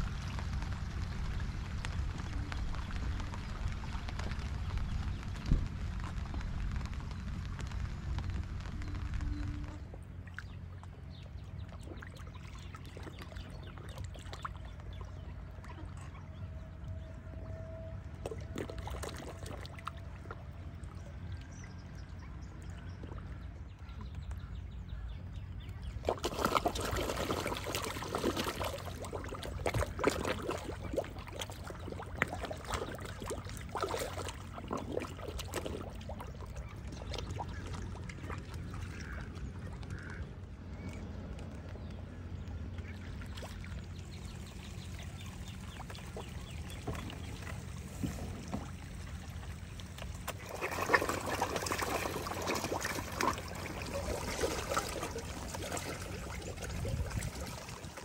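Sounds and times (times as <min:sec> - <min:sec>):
water splashing: 0:00.0 - 0:23.6, 0:25.7 - 0:58.0
water trickling and pouring: 0:26.1 - 0:40.2, 0:42.8 - 0:58.0.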